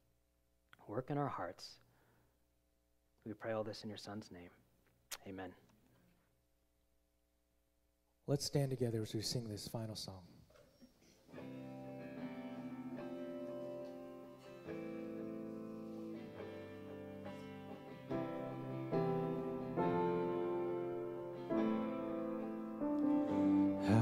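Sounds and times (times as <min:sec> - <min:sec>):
electric guitar chords: 0:11.4 - 0:24.0
keyboard chords: 0:11.4 - 0:24.0.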